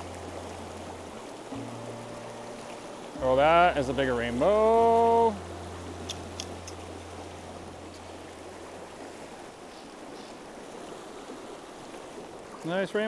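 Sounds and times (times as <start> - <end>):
river water rushing over rocks: 0.0 - 13.0
faint ticks: 6.0 - 7.0.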